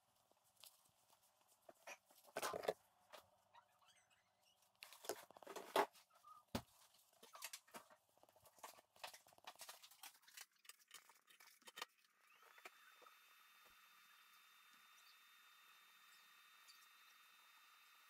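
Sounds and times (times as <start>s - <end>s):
paper rustling and crinkling: 4.8s - 12.1s.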